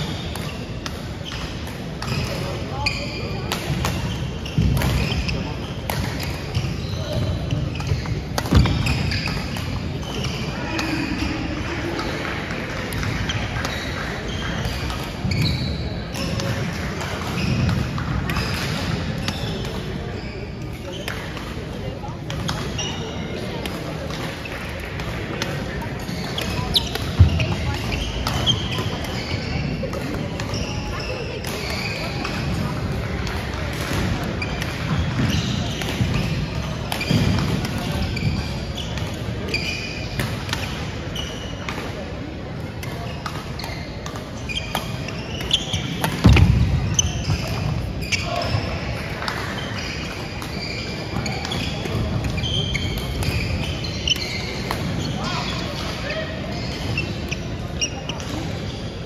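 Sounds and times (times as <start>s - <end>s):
shoes squeaking on gym floor: 0.0s - 12.1s, 12.7s - 21.3s, 22.0s - 24.6s, 25.4s - 59.0s
rackets hitting shuttlecocks: 3.4s - 21.6s, 23.4s - 30.6s, 31.4s - 39.3s, 42.6s - 47.9s, 48.5s - 56.0s
shoes squeaking on wooden floor: 6.4s - 11.1s, 15.2s - 15.9s, 39.5s - 40.2s, 43.1s - 59.0s.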